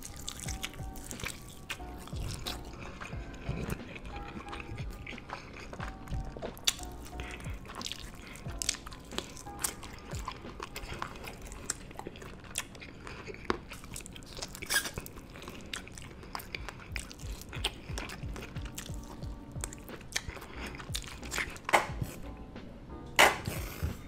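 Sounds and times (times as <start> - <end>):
man chewing food: 0.0 - 24.0.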